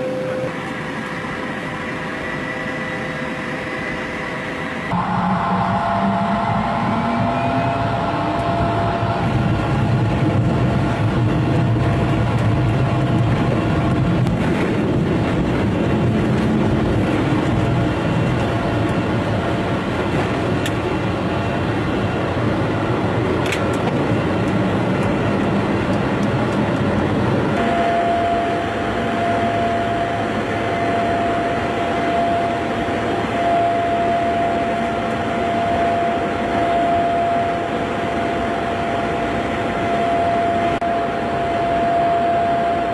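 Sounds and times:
steady high tone: 0.0s - 11.3s, 27.4s - 42.9s
jet engine roar: 0.0s - 42.9s
low rumble: 4.9s - 34.5s.

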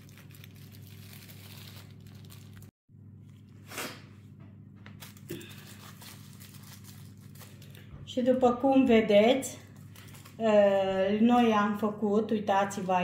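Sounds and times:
aluminium foil crinkle: 0.0s - 2.7s, 4.9s - 7.9s, 9.6s - 10.7s.

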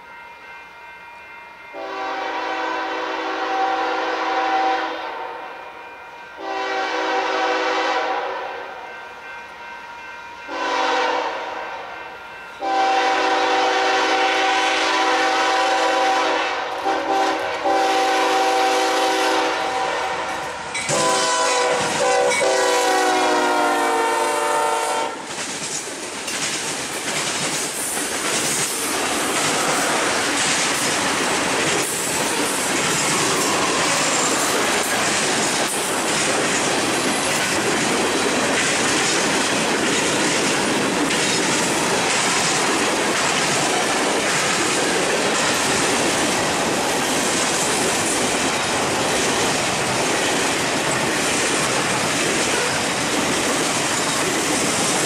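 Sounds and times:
locomotive air horn blasts: 1.8s - 5.7s, 6.4s - 8.6s, 10.5s - 11.9s, 12.6s - 25.2s
wheel clatter on rails: 25.2s - 55.0s.

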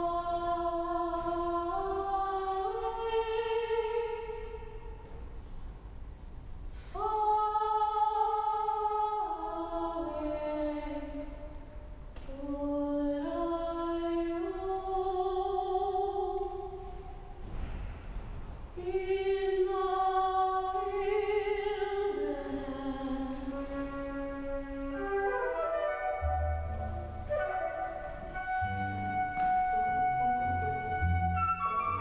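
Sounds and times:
opera singing melody: 0.0s - 5.0s, 6.9s - 11.6s, 12.2s - 17.2s, 18.8s - 32.0s
double bass notes: 23.2s - 32.0s.

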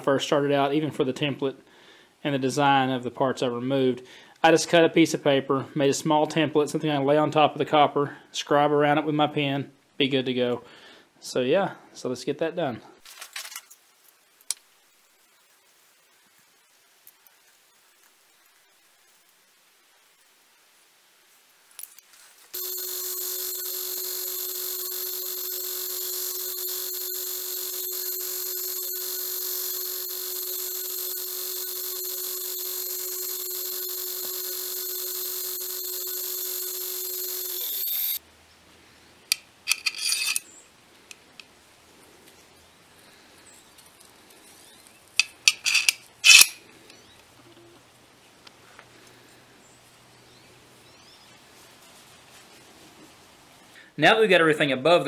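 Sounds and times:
belt grinder sanding: 22.6s - 38.2s.

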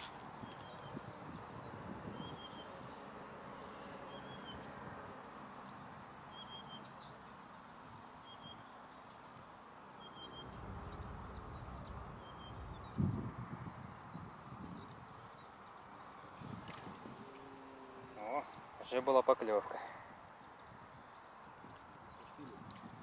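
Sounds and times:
low background rumble: 9.8s - 19.0s
bird calling: 10.0s - 15.5s, 16.1s - 20.6s
high bird chirps: 10.0s - 16.8s.

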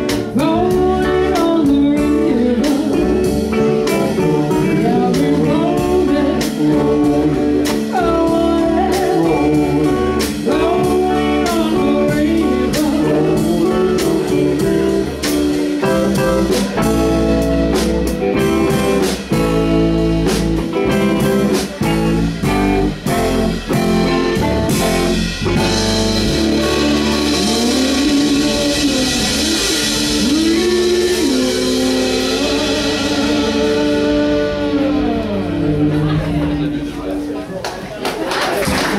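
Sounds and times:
drum beat: 0.0s - 36.6s
electric guitar: 0.0s - 37.9s
woman singing: 0.1s - 15.1s, 26.6s - 36.4s.

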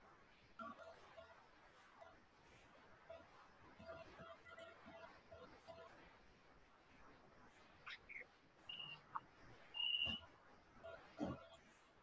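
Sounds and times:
faint high chirps: 7.9s - 9.2s, 9.8s - 10.2s
short steady whistle: 9.8s - 10.2s.

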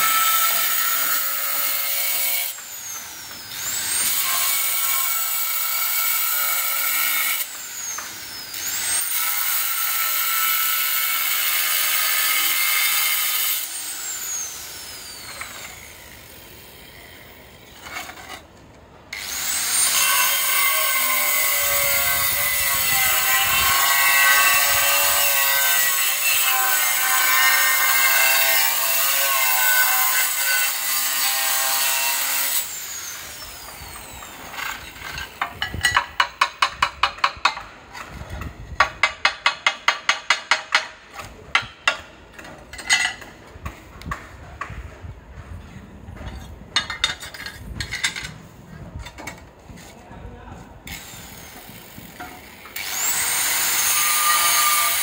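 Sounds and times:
angle grinder cutting tile: 0.0s - 16.6s, 19.2s - 36.6s, 50.9s - 55.0s.

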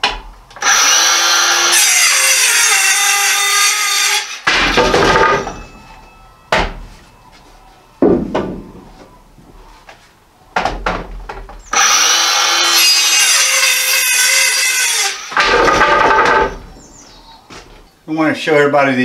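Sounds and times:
circular saw cutting wood: 0.6s - 4.8s, 11.7s - 16.6s
wooden boards knocking: 4.5s - 5.7s, 6.5s - 7.0s, 8.0s - 9.1s, 10.6s - 11.6s, 15.4s - 16.7s.

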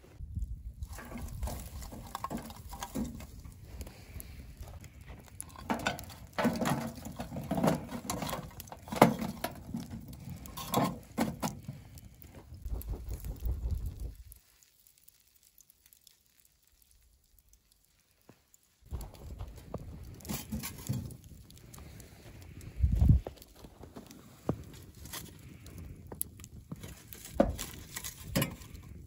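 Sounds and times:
coals clattering on metal: 0.8s - 12.7s, 18.8s - 22.6s, 24.6s - 29.0s.

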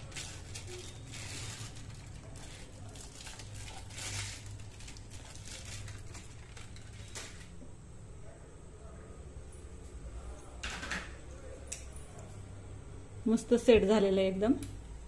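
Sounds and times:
aluminium foil crinkling: 0.0s - 7.6s.

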